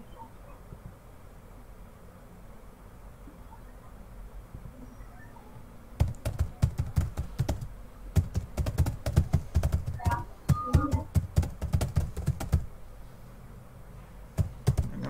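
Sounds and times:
typing on computer keyboard: 0:06.0 - 0:12.7, 0:14.4 - 0:15.0.

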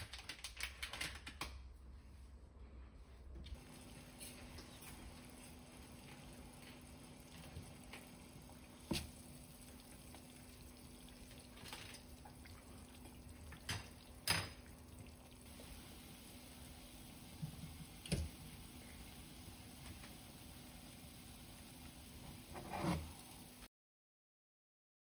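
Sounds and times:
water boiling in a pan: 0:03.5 - 0:23.7.

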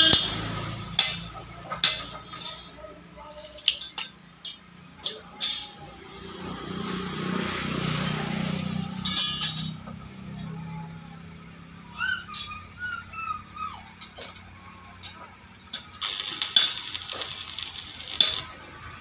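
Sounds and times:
metal clanking on metal: 0:00.0 - 0:05.9, 0:09.0 - 0:10.4, 0:14.0 - 0:18.7.

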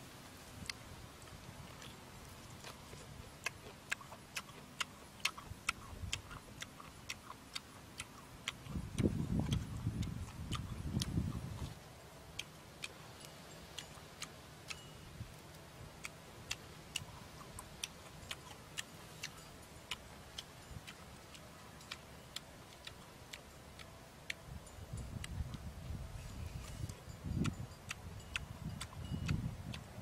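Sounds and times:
low steady hum: 0:00.0 - 0:30.0
wet mouth clicks chewing: 0:00.6 - 0:30.0
low mouth sound: 0:02.6 - 0:11.8, 0:25.1 - 0:30.0.

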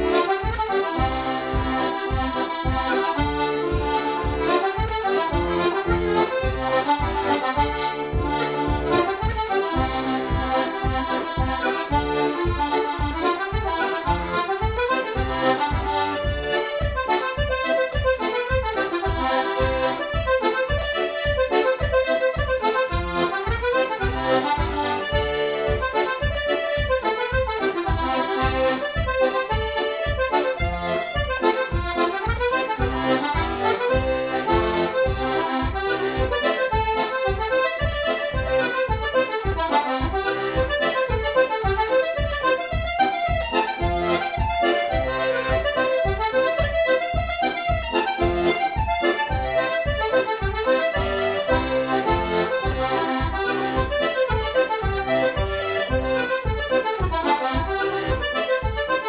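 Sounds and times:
button accordion playing a fast reel: 0:00.0 - 0:59.0.

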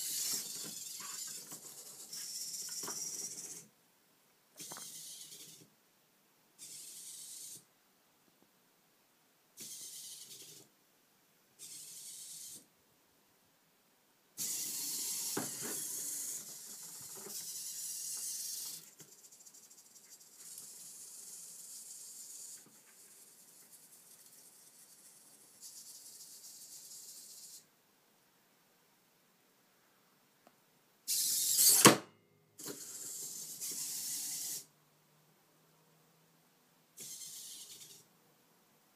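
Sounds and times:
robot servos whining: 0:00.0 - 0:03.7, 0:04.6 - 0:05.7, 0:11.6 - 0:12.7, 0:14.4 - 0:18.9, 0:31.1 - 0:32.0, 0:32.6 - 0:34.7, 0:37.0 - 0:38.0.

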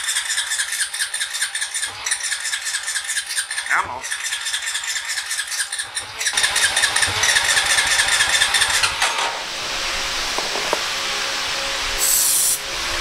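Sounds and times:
engine turning over: 0:06.2 - 0:10.9
falling whine: 0:08.7 - 0:13.0.

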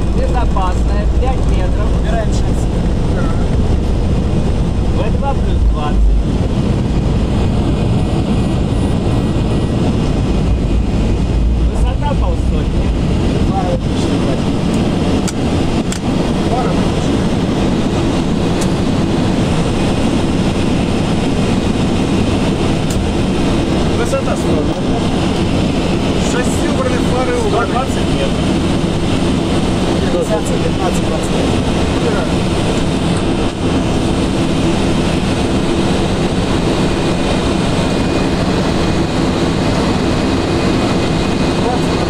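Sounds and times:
airliner cockpit engine rumble: 0:00.0 - 0:42.0
low hum: 0:00.0 - 0:42.0
rushing airflow: 0:00.0 - 0:42.0.

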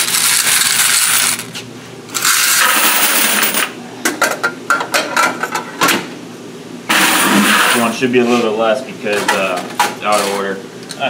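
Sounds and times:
coins jingling into bucket: 0:00.0 - 0:01.5, 0:02.2 - 0:03.7.

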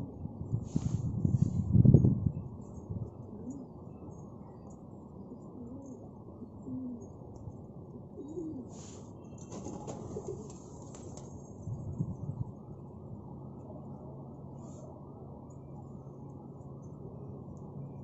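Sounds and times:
low background noise: 0:00.0 - 0:18.0
pigeons cooing: 0:08.1 - 0:08.9.

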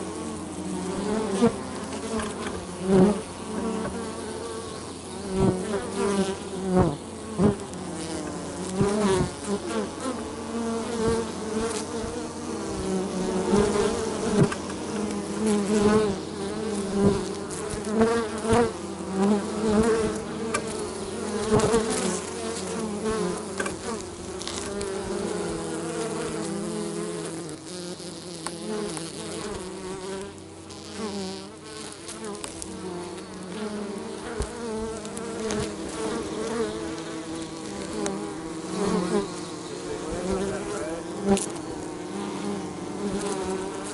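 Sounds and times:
bees buzzing: 0:00.0 - 0:43.9.

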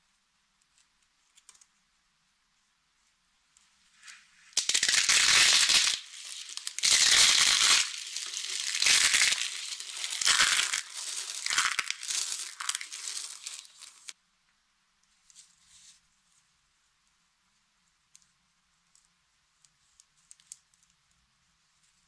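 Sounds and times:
soap crushed crackling: 0:04.6 - 0:14.2.

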